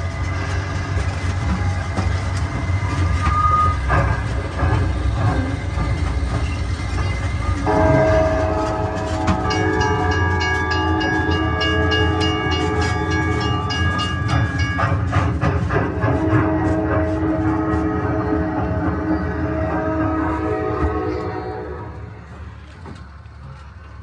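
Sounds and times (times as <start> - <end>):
chord-like train whistle: 2.8 - 4.1, 7.5 - 13.8, 16.0 - 22.1.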